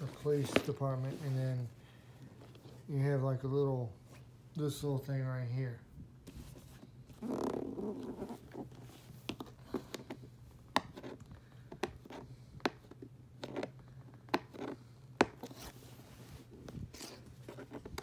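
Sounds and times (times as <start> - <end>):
cardboard scrape: 6.3 - 9.2, 15.4 - 18.0.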